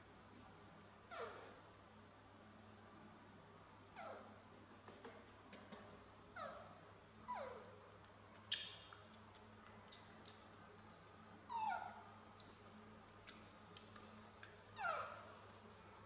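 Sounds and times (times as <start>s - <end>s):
baby monkey crying: 4.0s - 4.3s, 14.8s - 15.3s.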